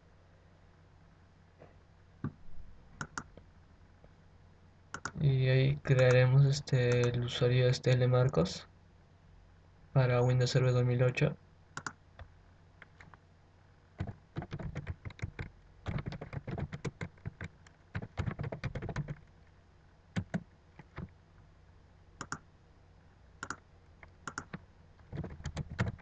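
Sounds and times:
typing on computer keyboard: 5.0s - 5.2s, 14.0s - 19.2s, 20.2s - 21.1s, 24.2s - 26.0s.

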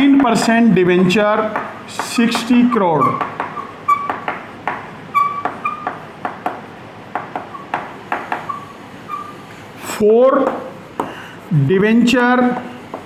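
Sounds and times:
chalk tapping on chalkboard: 0.0s - 9.6s, 10.4s - 11.2s, 12.4s - 13.0s
chalk squeaking: 1.4s - 6.1s, 7.4s - 10.6s.

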